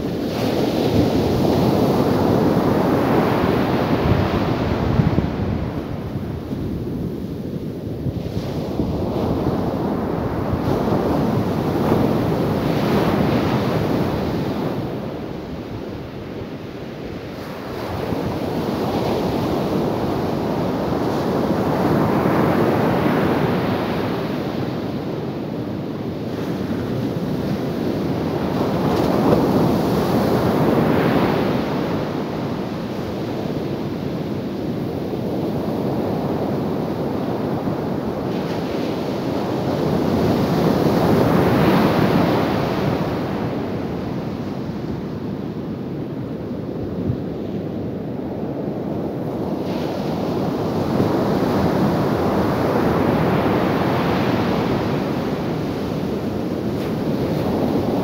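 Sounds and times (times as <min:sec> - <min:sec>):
ocean surf breaking on beach: 0:00.0 - 0:58.0.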